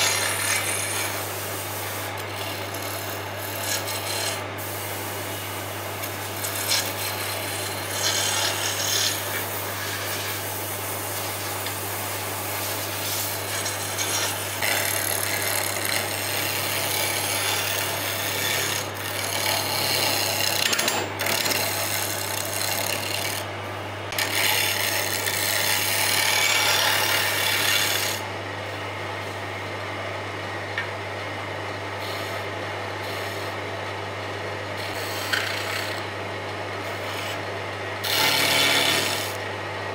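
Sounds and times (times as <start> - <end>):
lathe motor hum: 0.0 - 4.6, 5.2 - 10.4, 12.7 - 23.4, 24.2 - 29.4, 34.8 - 36.2, 36.8 - 39.6
turning tool scraping wood: 0.0 - 23.5, 24.1 - 28.3, 32.0 - 33.6, 34.8 - 36.2, 36.8 - 39.4.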